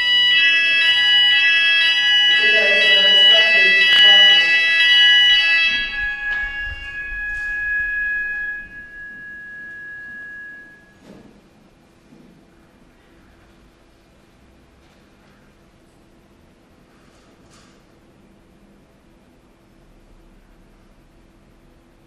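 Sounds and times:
high chime tones ringing: 0:00.0 - 0:11.1.

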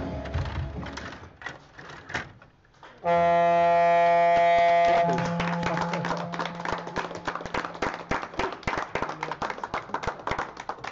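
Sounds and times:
timer horn buzzing: 0:03.0 - 0:07.4
crowd applause: 0:04.6 - 0:10.9.

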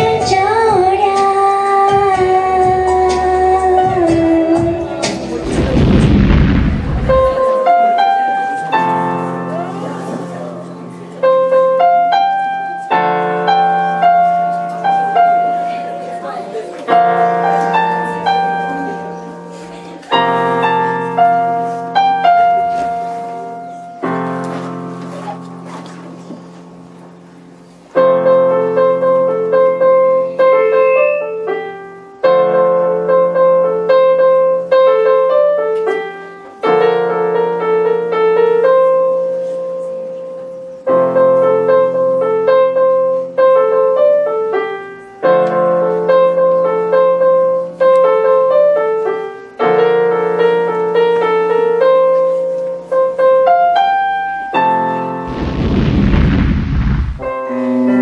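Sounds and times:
solo digital piano: 0:04.4 - 0:56.4.

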